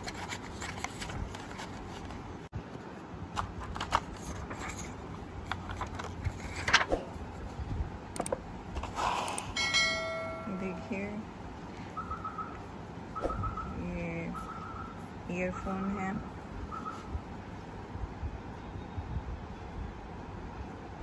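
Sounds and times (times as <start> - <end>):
packaging and cable rustling: 0.0 - 2.4
short ringing tone: 9.6 - 10.9.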